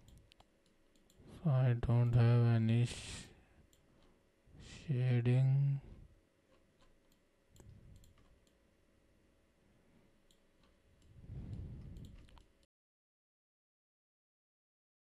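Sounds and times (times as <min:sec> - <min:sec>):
computer mouse clicks: 0:00.0 - 0:01.2, 0:06.5 - 0:08.6, 0:10.3 - 0:12.6
soft low rumble: 0:11.0 - 0:12.4.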